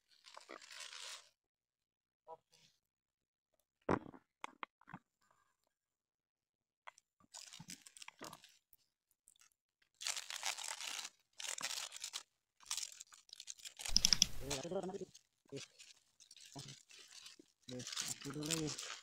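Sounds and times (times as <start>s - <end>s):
dry leaves crackling and tearing: 10.0s - 15.0s, 15.6s - 19.0s.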